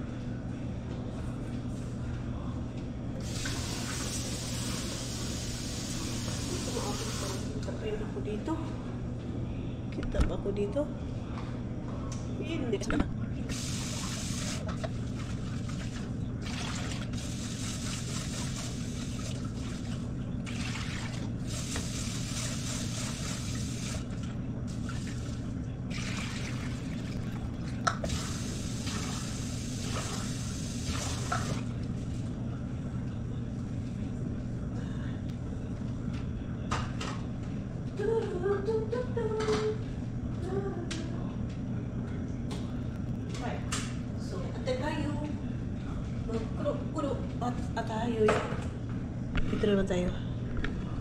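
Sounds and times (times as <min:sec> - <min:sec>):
steady low hum: 0:00.0 - 0:51.0
water running from tap: 0:03.2 - 0:07.6, 0:15.2 - 0:24.1, 0:28.0 - 0:31.7.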